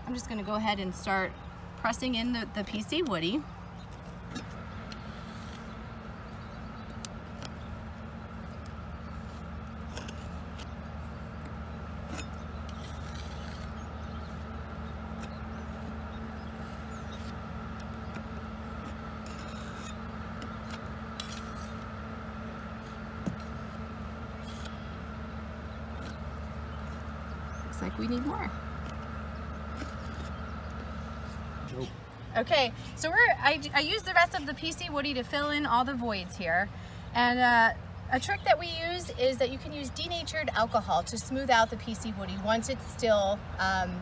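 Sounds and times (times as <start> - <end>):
steady machine hum: 0.0 - 44.0
putty knife scraping putty: 18.8 - 21.8.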